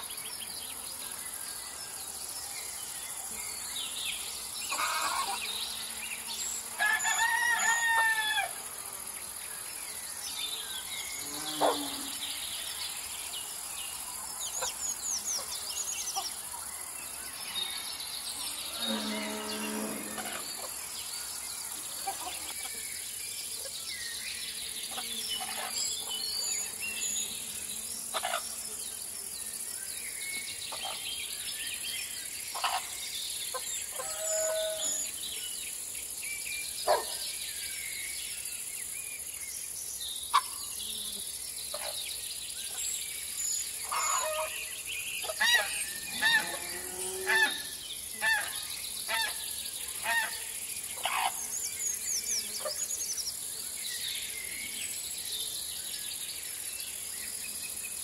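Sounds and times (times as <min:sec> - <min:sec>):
crickets and insects droning: 0:00.0 - 0:58.0
rooster crowing: 0:06.8 - 0:08.6.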